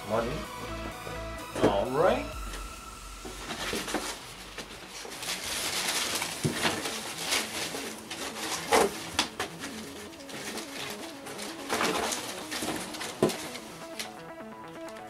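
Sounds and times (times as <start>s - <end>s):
packaging rustling and scraping: 1.6s - 15.0s
items knocking against cardboard: 5.8s - 14.1s.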